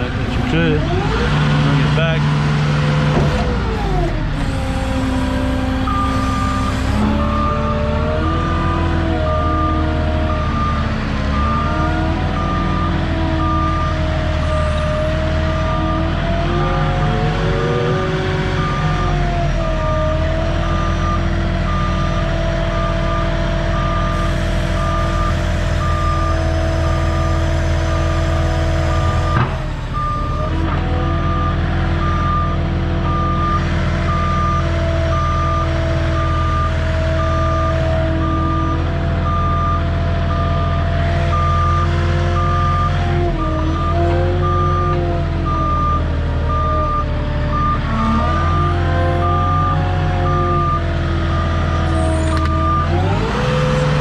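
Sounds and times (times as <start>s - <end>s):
forklift engine running: 0.0s - 54.0s
clunk: 3.1s - 3.5s, 29.2s - 29.7s
reversing alarm beeping: 5.8s - 54.0s.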